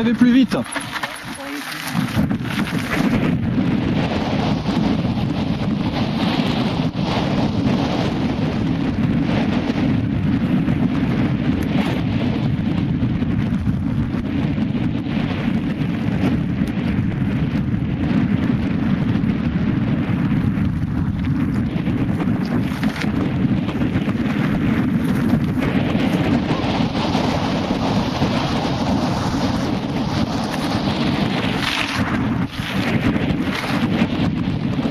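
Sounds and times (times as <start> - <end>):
wind buffeting microphone: 0.0 - 34.9
tyres crunching over gravel: 0.1 - 3.3, 21.2 - 23.3, 30.4 - 34.2.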